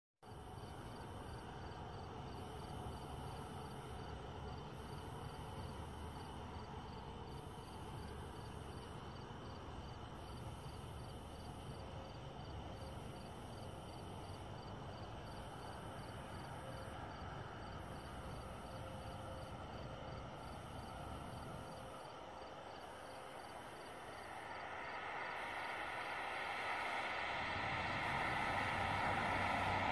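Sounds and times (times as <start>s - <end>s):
insects chirping: 0.3s - 29.9s
car tyres hissing on wet road: 23.0s - 29.9s
low rumble: 23.3s - 29.9s.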